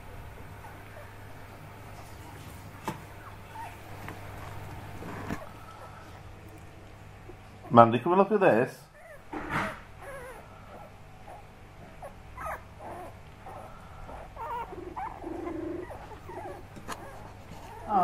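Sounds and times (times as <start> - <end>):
puppies whimpering and squeaking: 0.4 - 1.3, 3.1 - 6.1, 8.9 - 18.0
puppy low grumble: 9.0 - 18.0.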